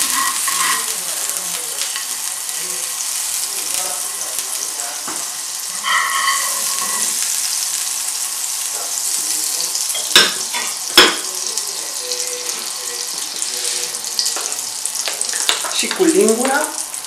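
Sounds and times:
butter sizzling in frying pan: 0.0s - 17.0s.

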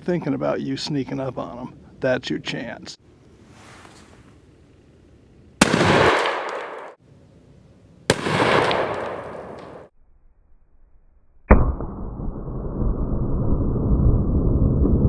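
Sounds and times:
gunshots with echoing rumble: 5.6s - 7.0s, 8.1s - 9.9s, 11.5s - 12.4s.

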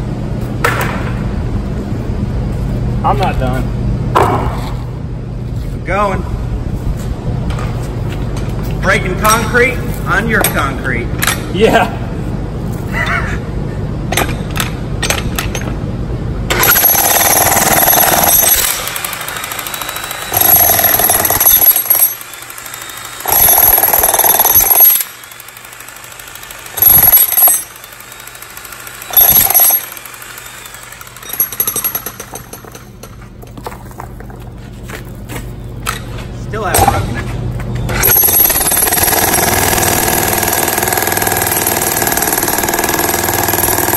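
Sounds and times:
steady low hum: 0.0s - 41.5s
jackhammer chiselling concrete: 16.6s - 32.4s, 38.0s - 43.9s.

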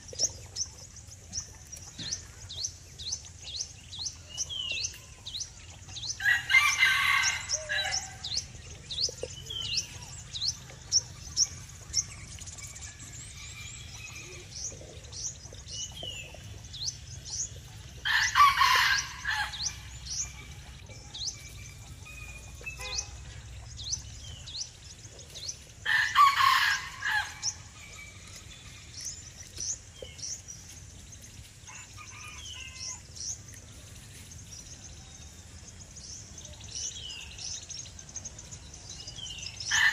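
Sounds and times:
small birds chirping: 0.0s - 39.9s
rooster crowing: 6.2s - 8.2s.

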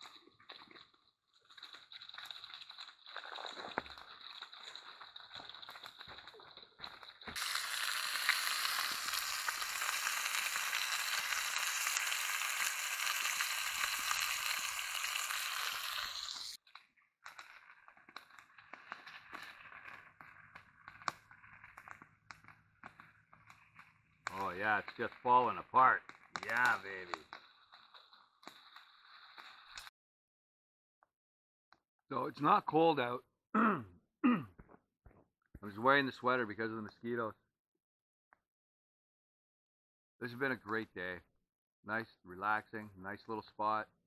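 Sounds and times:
fire crackling: 0.0s - 29.9s
fish sizzling in a pan: 1.4s - 16.7s, 17.3s - 25.1s, 26.0s - 29.9s.

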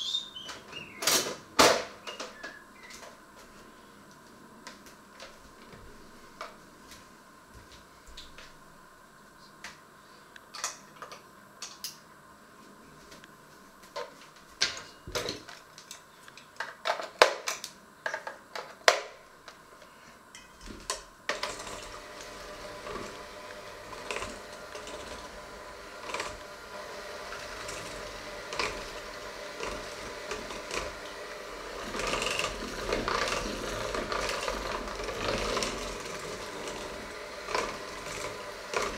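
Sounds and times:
electric hand mixer whisking: 20.6s - 38.9s.

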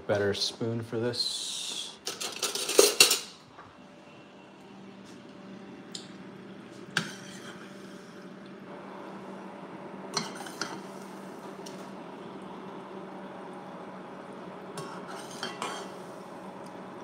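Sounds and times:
oil sizzling in saucepan: 8.8s - 17.0s.

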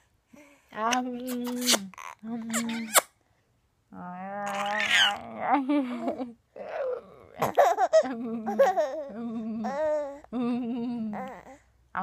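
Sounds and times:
adult playful vocal noises: 0.8s - 3.0s, 3.9s - 11.5s
baby giggling and laughing: 5.9s - 10.2s.

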